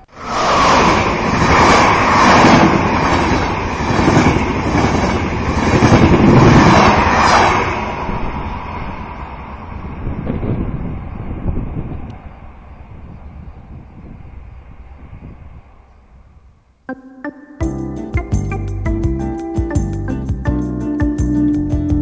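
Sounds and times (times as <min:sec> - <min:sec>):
train passing rumble: 0:00.0 - 0:16.8.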